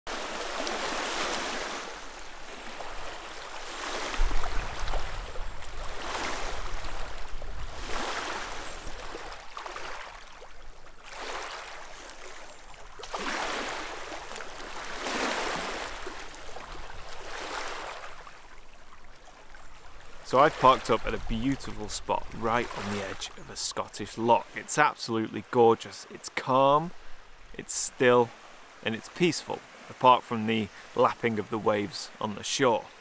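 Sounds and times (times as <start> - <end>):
small waves lapping on stony shore: 0.1 - 24.6.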